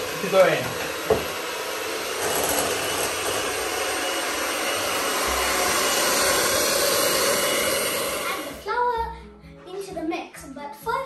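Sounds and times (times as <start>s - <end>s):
electric hand mixer whisking batter: 0.0s - 8.7s.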